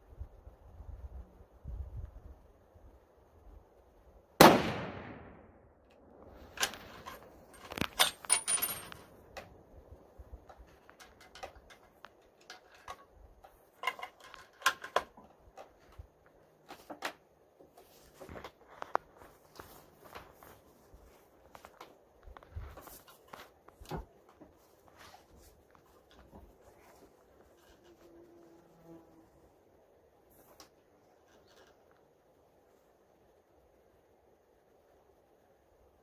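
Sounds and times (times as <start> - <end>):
rifle shot with echo: 4.4 - 5.6.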